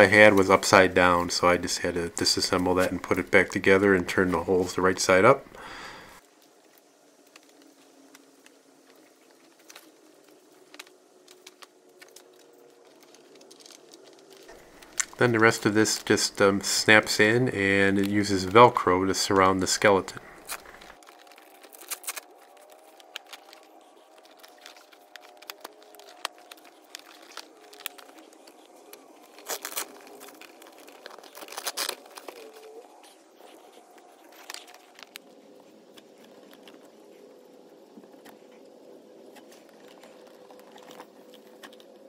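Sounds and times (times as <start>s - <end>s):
fabric crinkling and rustling: 6.2s - 42.0s
velcro ripping: 20.0s - 35.2s.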